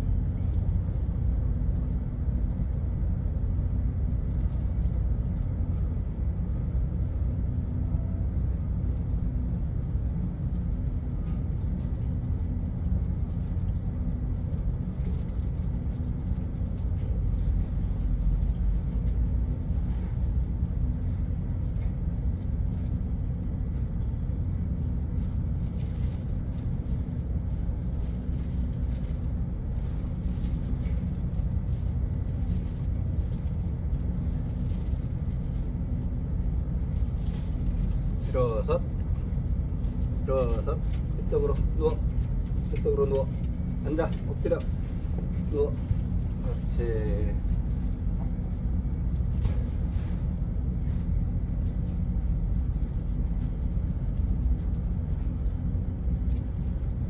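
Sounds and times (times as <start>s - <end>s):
constant machinery hum: 0.0s - 57.0s
ship machinery rumble: 0.0s - 57.0s.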